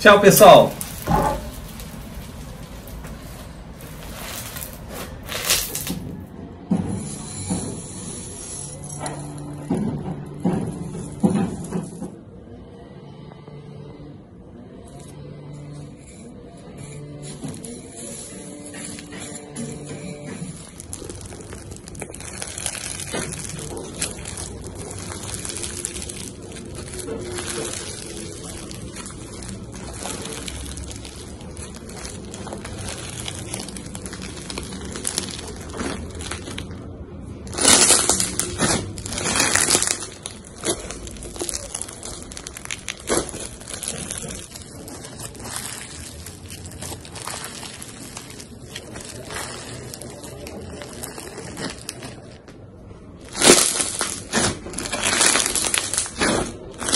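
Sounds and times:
bead-filled slime crackling and popping: 0.0 - 6.3, 17.6 - 52.6, 53.2 - 56.9.

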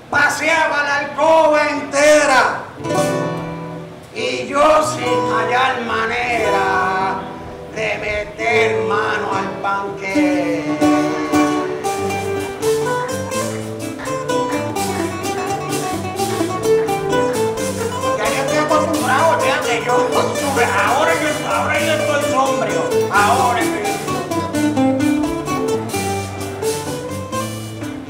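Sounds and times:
cuatro and guitar playing: 2.6 - 28.0
man singing: 4.1 - 12.4, 17.2 - 24.5.

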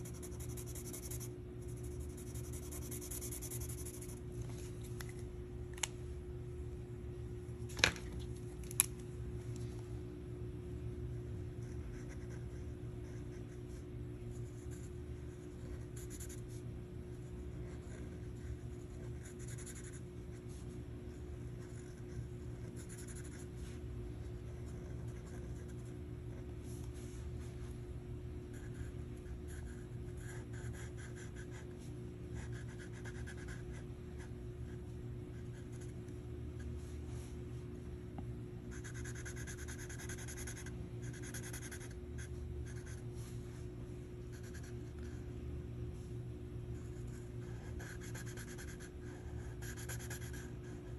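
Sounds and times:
marker scratching on paper: 0.0 - 4.2, 17.6 - 20.8, 38.7 - 43.0, 46.9 - 50.9.

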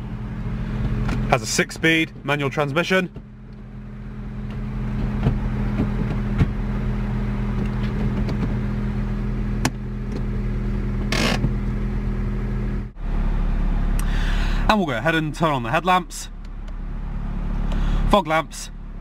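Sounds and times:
car engine idling: 0.0 - 19.0
gear lever clicks and clunks: 11.0 - 11.6
handbrake ratchet rasp: 11.0 - 11.6.

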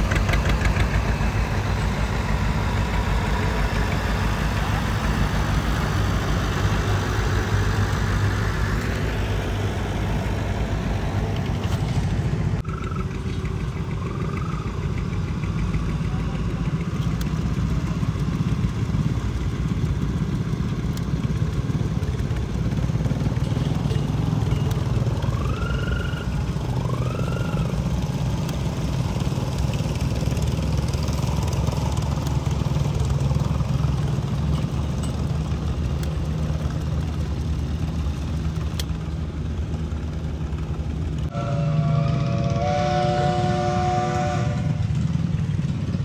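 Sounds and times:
tractor engines running: 0.0 - 46.0
steam whistle chord: 41.3 - 44.9.

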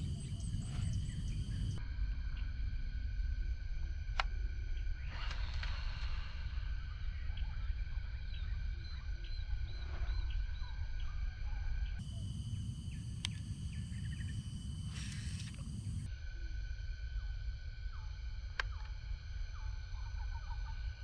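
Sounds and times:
high-pitched drone: 0.0 - 2.7, 4.8 - 21.0
low rumble: 0.0 - 16.2.

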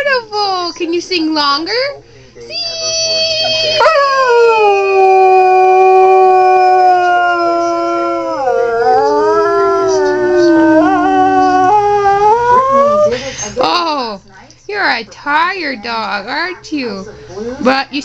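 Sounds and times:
dog howling: 2.8 - 13.2.

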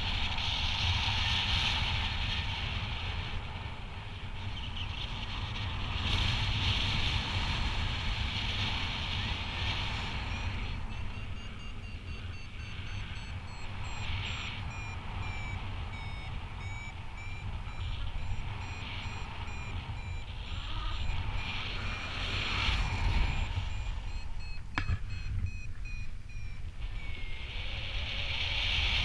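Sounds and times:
wind rumbling on microphone: 0.0 - 29.0
variometer beeping: 9.2 - 27.6.

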